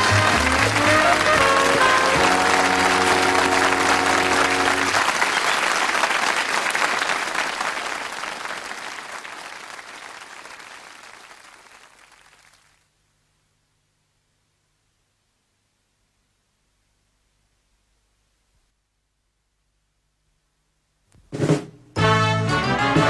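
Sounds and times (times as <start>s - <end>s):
theme music chord: 0.0s - 5.0s
audience applauding: 0.0s - 12.8s.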